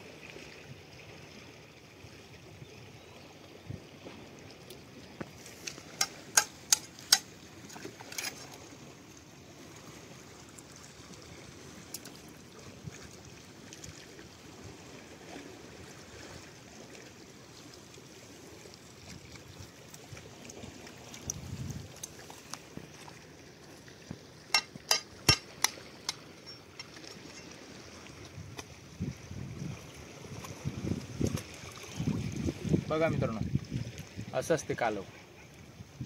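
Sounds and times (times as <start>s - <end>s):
faint trickle of running water: 0.0s - 36.0s.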